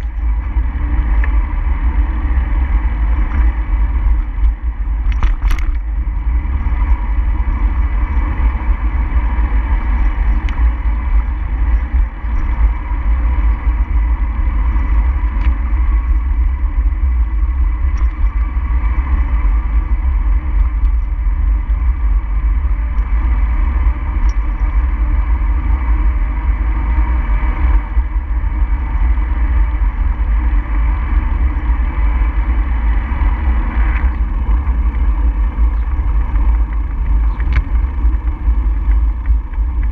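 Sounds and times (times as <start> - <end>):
wind and road noise rumble: 0.0 - 39.9
faint ticks: 24.2 - 24.4.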